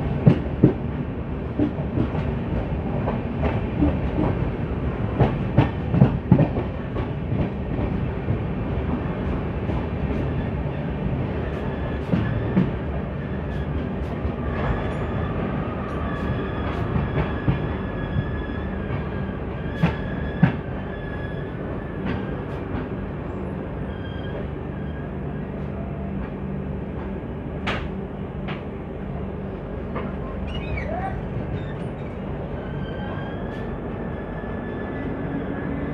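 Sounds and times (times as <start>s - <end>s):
rumble of train wheels on rails: 0.0s - 35.9s
high wheel squeal: 30.5s - 33.6s.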